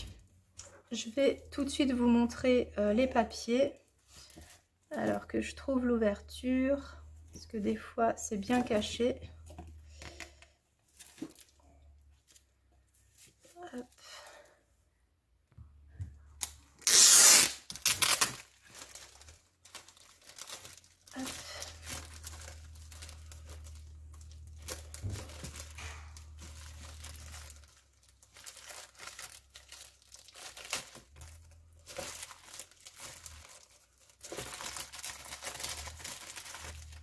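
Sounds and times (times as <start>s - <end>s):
plastic crinkling and rustling: 0.0s - 5.7s, 6.8s - 13.9s, 16.8s - 37.0s
plastic packaging ripping: 16.4s - 37.0s.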